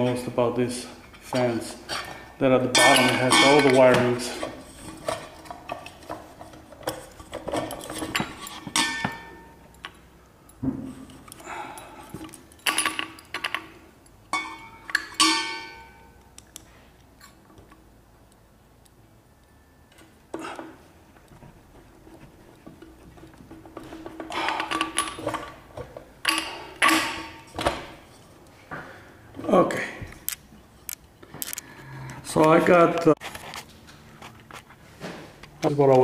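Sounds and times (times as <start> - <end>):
metal parts clicking and clinking: 1.1 - 17.4, 23.2 - 28.2, 30.2 - 31.6.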